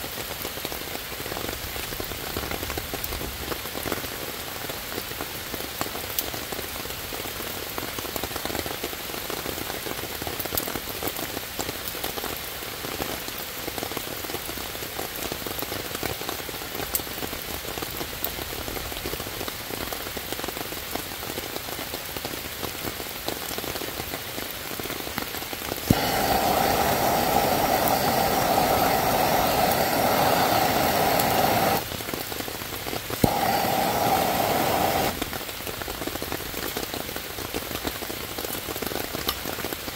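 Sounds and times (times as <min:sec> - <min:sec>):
rain on wet leaves: 0:00.0 - 0:39.9
gas torch click: 0:25.8 - 0:31.9, 0:33.2 - 0:35.3
gas torch hissing: 0:25.8 - 0:32.2, 0:33.0 - 0:35.4.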